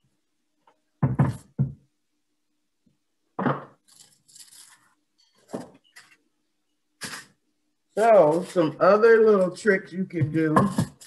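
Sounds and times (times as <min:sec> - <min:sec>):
aluminium foil crinkling: 0:03.8 - 0:06.2.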